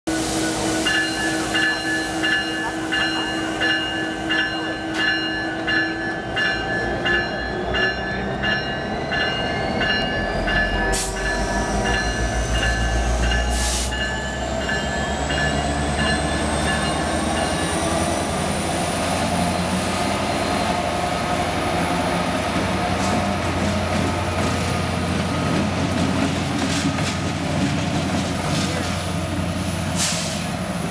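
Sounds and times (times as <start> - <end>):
diesel locomotive engine: 0.1 - 30.9
locomotive bell ringing: 0.8 - 21.4.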